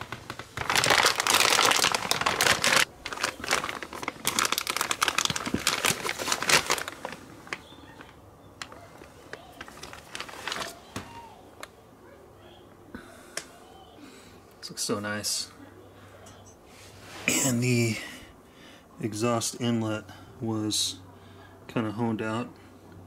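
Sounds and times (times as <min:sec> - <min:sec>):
crinkling handling noise: 0:00.0 - 0:11.8.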